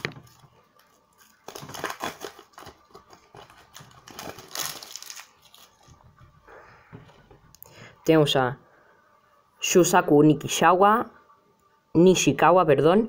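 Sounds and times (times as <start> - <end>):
foil packet tearing and crinkling: 0.0 - 6.0.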